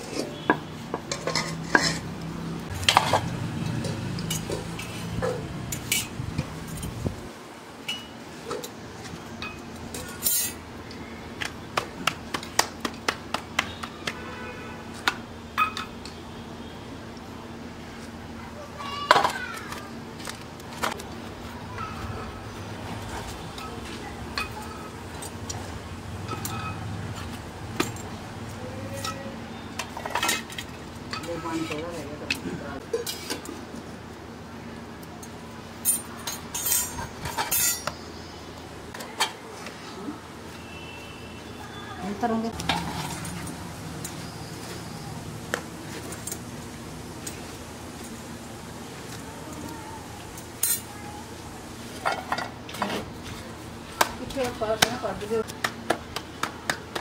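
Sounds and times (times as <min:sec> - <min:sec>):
metal spatula scraping and clinking: 0:00.0 - 0:02.1
metal tongs clinking on iron: 0:01.0 - 0:02.1, 0:02.9 - 0:07.0, 0:09.4 - 0:10.6, 0:26.2 - 0:26.9, 0:35.2 - 0:38.0, 0:50.4 - 0:50.9
hands slapping dough: 0:11.4 - 0:14.3, 0:54.8 - 0:57.0.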